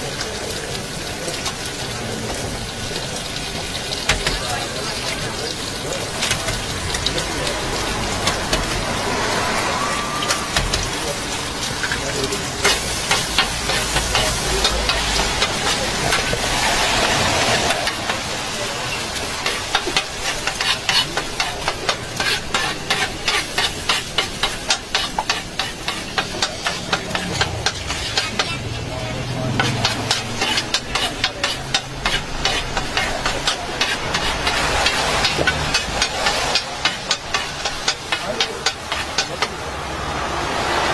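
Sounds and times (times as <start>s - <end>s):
food frying hiss: 0.0s - 40.9s
metal spatula clacking on griddle: 3.9s - 4.5s, 8.1s - 9.4s, 10.2s - 11.1s, 11.8s - 18.2s, 19.4s - 28.6s, 29.2s - 39.6s.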